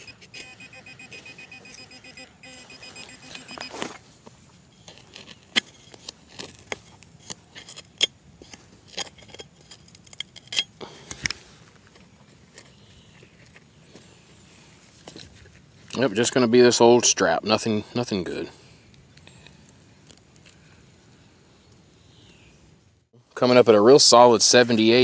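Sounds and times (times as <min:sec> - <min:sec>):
pinpointer rapid pulsing tone: 0:00.0 - 0:03.8
trowel scraping through soil: 0:04.8 - 0:11.6.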